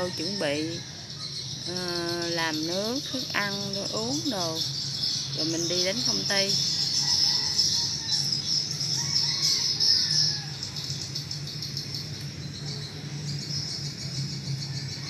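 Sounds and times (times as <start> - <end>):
birds chirping: 0.0 - 15.0
insects: 0.0 - 15.0.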